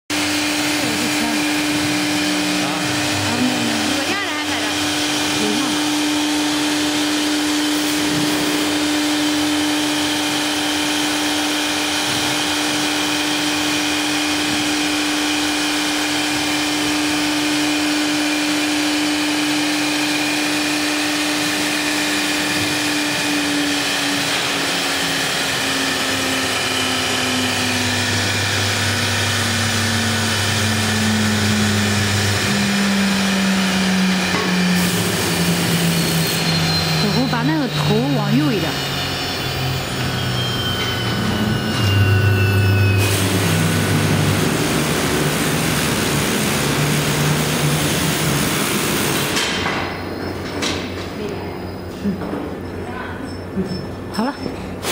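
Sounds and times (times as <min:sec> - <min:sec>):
cnc router whine and whoosh: 0:00.1 - 0:51.8
deep hum: 0:21.4 - 0:49.2
tone falling in pitch: 0:31.2 - 0:44.5.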